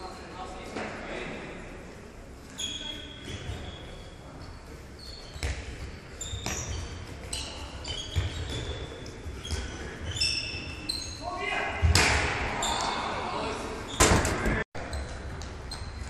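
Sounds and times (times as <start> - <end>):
sports shoes squeaking: 2.5 - 11.3, 13.9 - 16.0.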